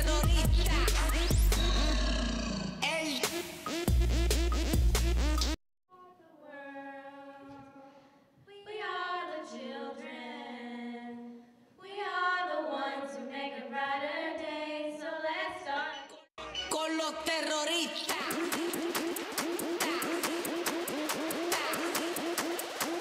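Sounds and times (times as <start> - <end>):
loud dance music: 0.0 - 2.0, 2.8 - 5.6, 16.4 - 23.0
women singing a cappella: 5.9 - 16.1, 17.4 - 22.4.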